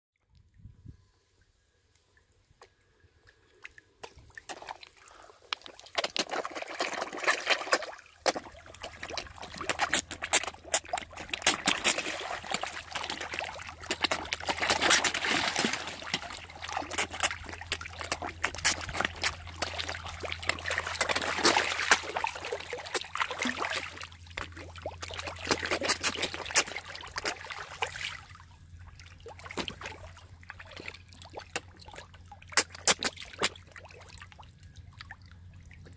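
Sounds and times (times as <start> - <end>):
low steady hum: 0.2 - 35.9
fish splashing at the surface: 4.0 - 34.4
fish mouths slurping clicks: 7.2 - 22.1, 24.4 - 27.5, 32.5 - 33.6.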